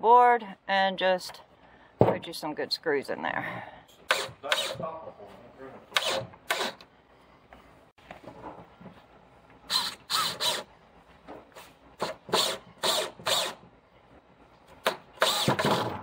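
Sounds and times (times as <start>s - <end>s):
cordless drill driving screws: 4.0s - 4.8s, 5.9s - 6.9s, 9.7s - 10.7s, 12.0s - 13.7s, 14.8s - 16.0s.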